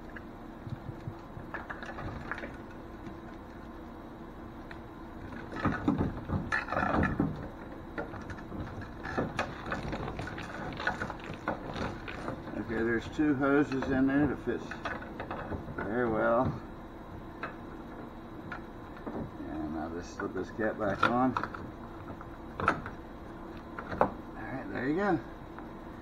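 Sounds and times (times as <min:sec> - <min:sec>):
plastic hose scraping and rustling: 0:05.3 - 0:16.6.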